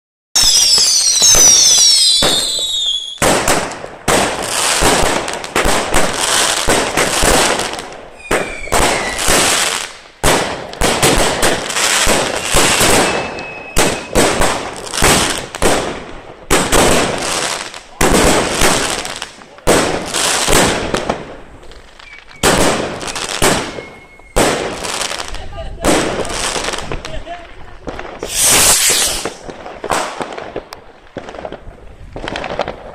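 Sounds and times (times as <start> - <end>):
whistling firework falling in pitch: 0.4 - 3.3, 8.2 - 9.6, 12.1 - 14.4, 22.0 - 24.6, 28.2 - 29.6
firework bangs: 0.4 - 27.2, 27.8 - 32.9.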